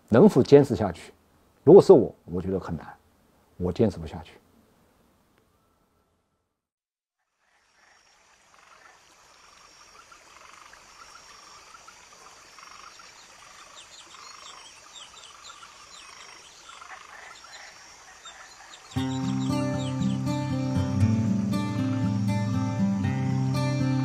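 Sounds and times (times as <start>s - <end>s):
frogs croaking: 7.2s - 24.0s
high insect trill: 7.2s - 24.0s.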